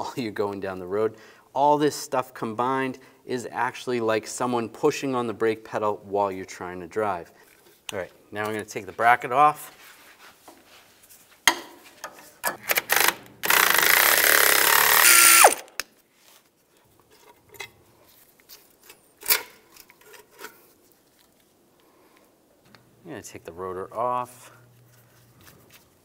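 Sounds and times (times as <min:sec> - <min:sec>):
ratchet clicks: 0:12.5 - 0:15.8
power tool spinning: 0:12.6 - 0:15.8.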